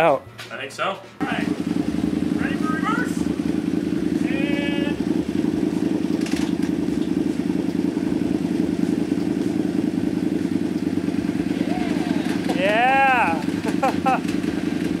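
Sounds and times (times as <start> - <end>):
engine running steadily: 1.0 - 15.0.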